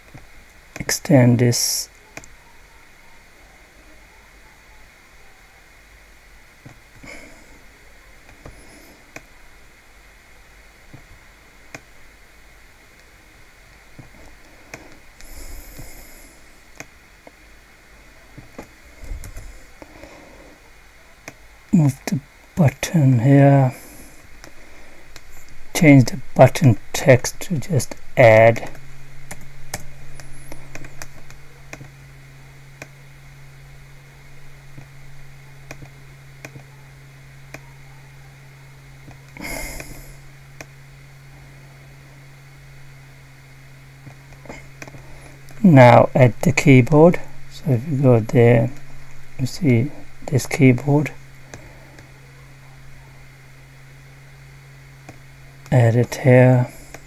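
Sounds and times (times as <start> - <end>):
faint background hiss: 0.0 - 57.0
low electrical hum: 0.0 - 57.0
computer mouse clicks: 28.6 - 31.9, 35.7 - 36.7.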